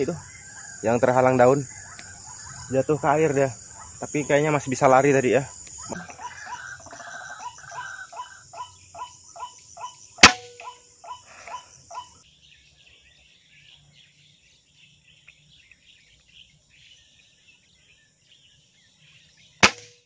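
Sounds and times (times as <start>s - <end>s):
faint high insect hiss: 0.0s - 20.0s
air rifle shot crack: 10.2s - 10.6s, 19.6s - 20.0s.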